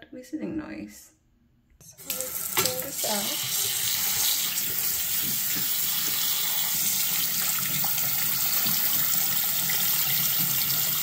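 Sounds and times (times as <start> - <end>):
tap water splashing on hand: 2.1 - 3.0, 3.6 - 10.5.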